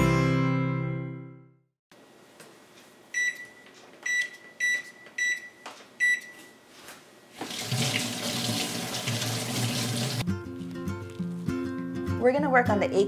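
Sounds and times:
oven touch-pad beeping: 0:03.1 - 0:06.6
faucet running water into sink: 0:07.4 - 0:10.2.

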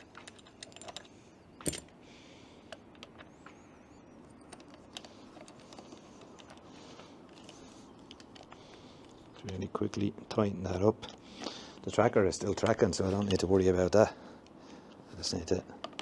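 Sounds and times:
small clicks and knocks: 0:00.0 - 0:02.0, 0:02.7 - 0:03.6, 0:04.3 - 0:09.6, 0:11.0 - 0:13.6, 0:15.8 - 0:16.0.

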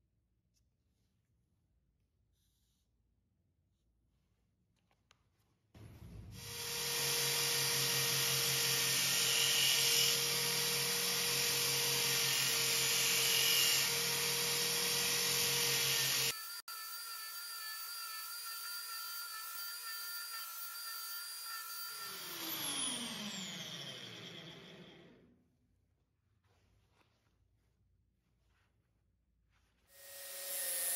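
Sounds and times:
electric drill motor whine: 0:06.3 - 0:25.2, 0:30.0 - 0:30.9.

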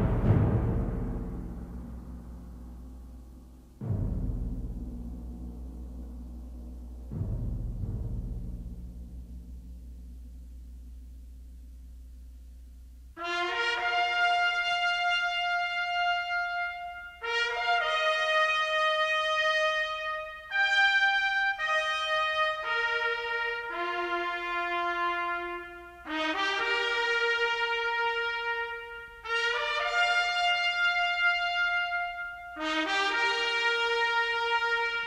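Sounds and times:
brass music: 0:00.0 - 0:03.0, 0:13.2 - 0:35.0.

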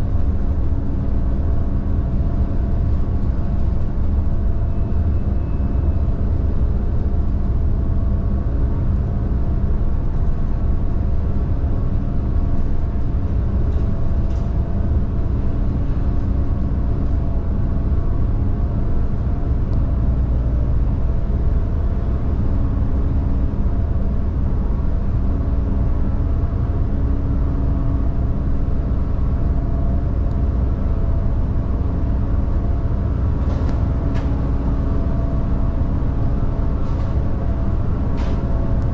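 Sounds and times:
ship engines droning: 0:14.7 - 0:38.9.

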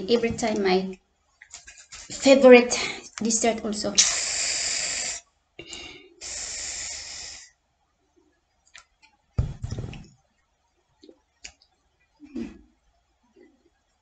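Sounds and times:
low thump: 0:09.4 - 0:10.1.

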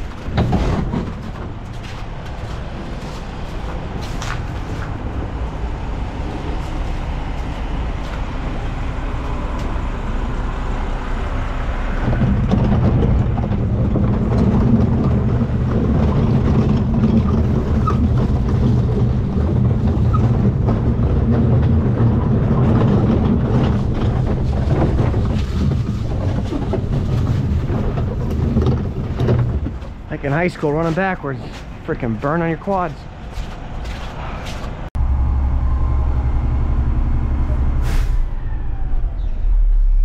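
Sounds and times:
scattered clanks: 0:00.0 - 0:05.0, 0:12.0 - 0:34.7
garbage truck engine running: 0:00.0 - 0:34.1, 0:34.7 - 0:40.0.

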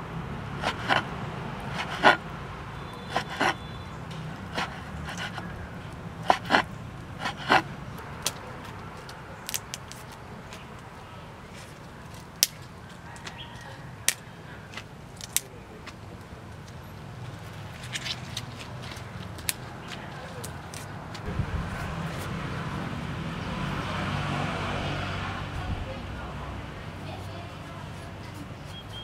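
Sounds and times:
leafy greens snapping: 0:08.0 - 0:10.7, 0:12.0 - 0:12.7, 0:14.1 - 0:16.0.

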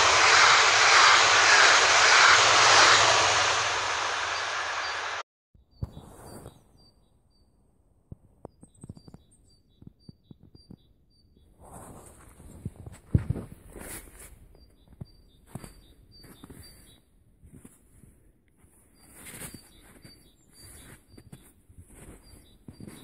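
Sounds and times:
train passing at speed: 0:00.0 - 0:05.2.

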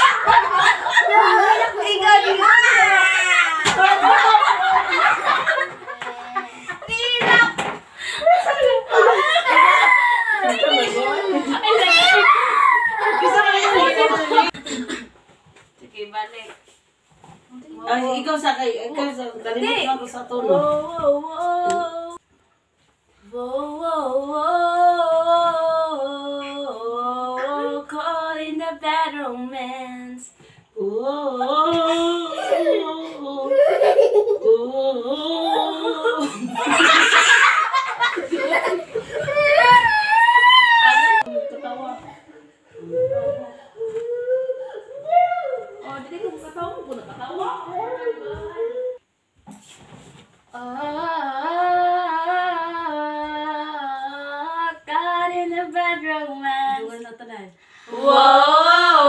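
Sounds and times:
women singing a cappella: 0:20.2 - 0:22.2, 0:23.2 - 0:33.7, 0:50.5 - 0:59.0.

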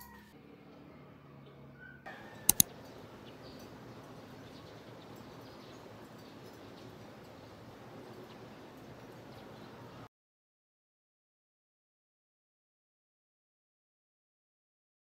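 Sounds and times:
outdoor background noise: 0:00.0 - 0:10.1
sharp clicks: 0:02.5 - 0:02.8.

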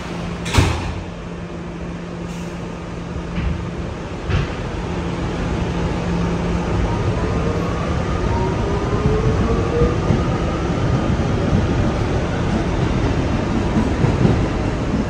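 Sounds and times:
subway train rumbling on rails: 0:00.0 - 0:15.0.

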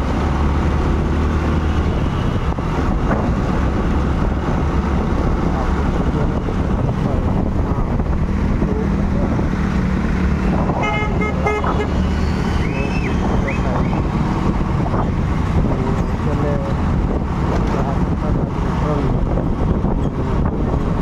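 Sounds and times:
wind on microphone: 0:00.0 - 0:21.0
vehicle horn honking: 0:10.8 - 0:12.0.

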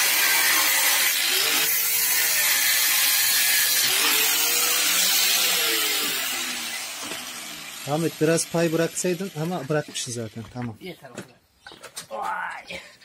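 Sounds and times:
angle grinder cutting metal: 0:00.0 - 0:10.3.

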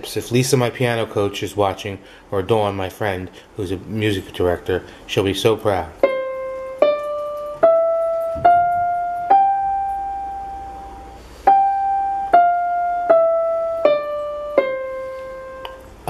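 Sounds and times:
electronic keyboard playing a scale: 0:06.0 - 0:16.0.

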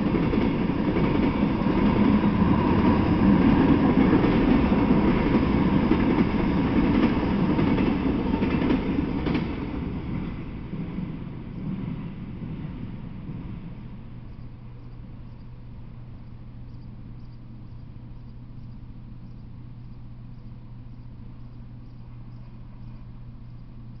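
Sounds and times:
steady low hum: 0:00.0 - 0:24.0
insect chirping: 0:10.2 - 0:24.0.

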